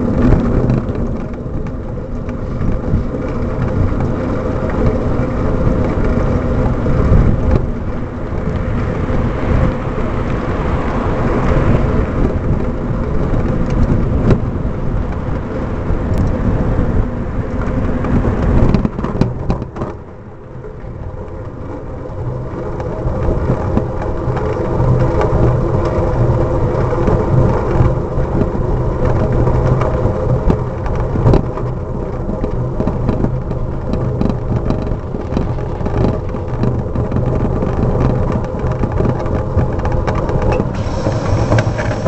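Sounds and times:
bicycle road rumble: 0:00.0 - 0:42.0
wind: 0:00.0 - 0:42.0
small rattles and knocks: 0:17.5 - 0:42.0.

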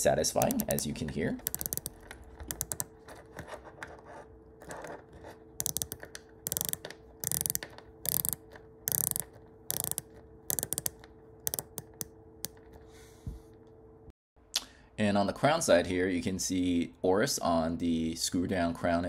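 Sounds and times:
watch bezel ratcheting clicks: 0:00.3 - 0:02.9, 0:05.6 - 0:12.6.

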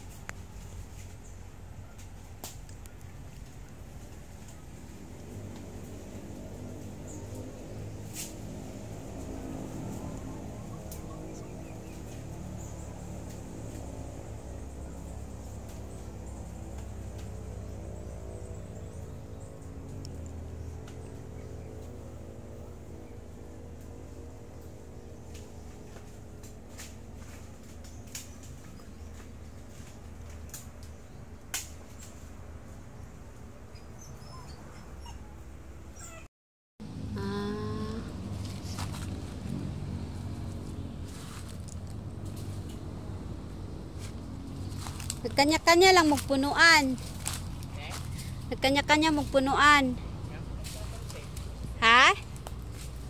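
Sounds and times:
sharp crack: 0:31.5 - 0:32.2
steady low rumble: 0:36.8 - 0:49.1.

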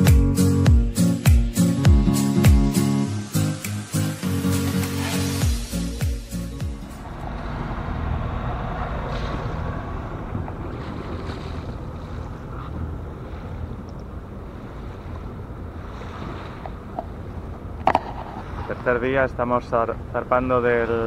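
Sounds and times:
water rushing along hull: 0:02.7 - 0:21.0
low rumble: 0:06.7 - 0:16.1.

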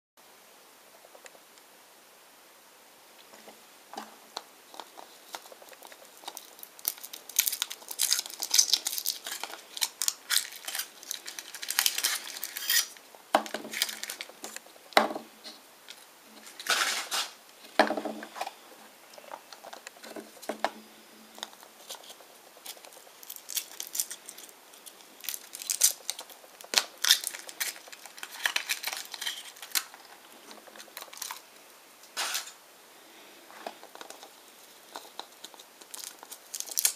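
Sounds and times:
foil wrappers crinkling: 0:04.7 - 0:14.6, 0:21.4 - 0:31.5, 0:33.6 - 0:36.9.

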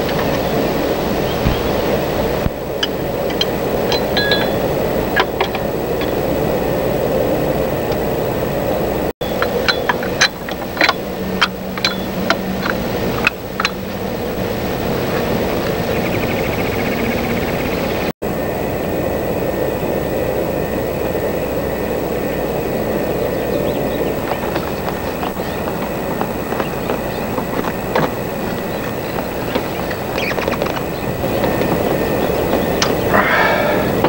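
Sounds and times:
background hiss and hum: 0:00.0 - 0:34.0
metal tool clinking: 0:02.8 - 0:06.3, 0:09.2 - 0:14.2.

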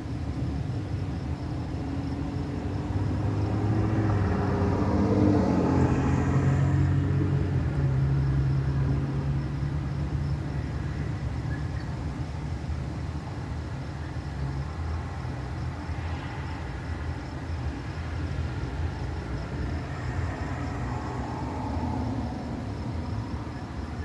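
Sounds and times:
vehicle engine passing by: 0:01.9 - 0:11.5, 0:15.0 - 0:24.0.

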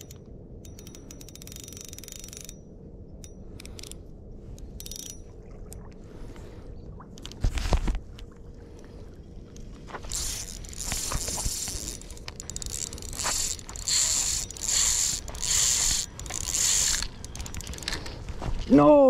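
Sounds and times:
spinning reel ratchet clicking: 0:00.0 - 0:02.6, 0:04.8 - 0:05.2, 0:10.1 - 0:18.0.

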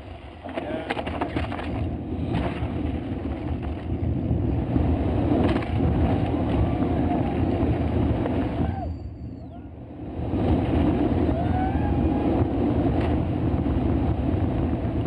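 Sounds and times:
bike clattering over bumps: 0:00.4 - 0:08.6
bike tyres skidding on loose dirt: 0:00.6 - 0:09.1.

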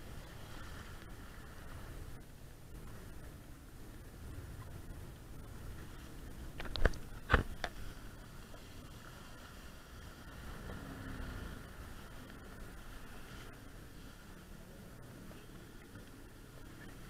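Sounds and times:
jet ski engine rumble: 0:00.0 - 0:17.0.

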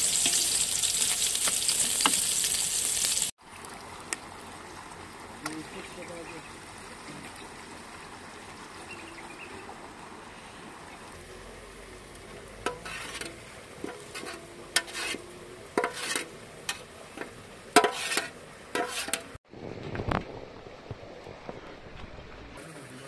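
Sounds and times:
metal spoon scraping a pot: 0:12.6 - 0:19.4.

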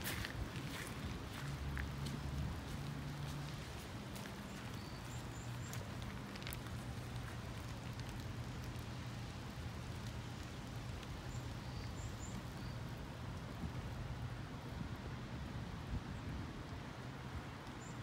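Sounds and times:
light ticks: 0:04.2 - 0:09.0, 0:17.6 - 0:17.9.

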